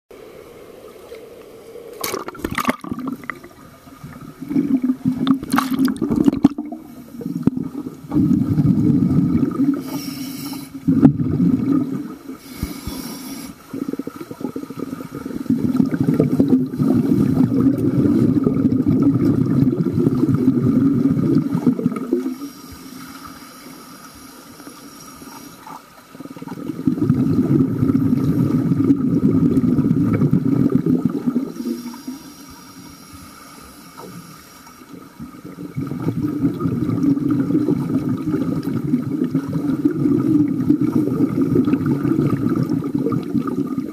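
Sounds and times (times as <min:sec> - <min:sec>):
faint hiss: 0:00.1 - 0:02.4, 0:06.6 - 0:26.8, 0:27.6 - 0:35.7
underwater exhale bubbling: 0:01.0 - 0:43.9.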